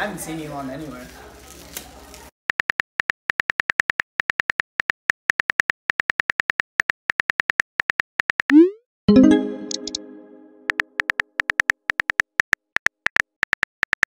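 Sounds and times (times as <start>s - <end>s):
smartphone keyboard clicks: 10.7s - 14.0s.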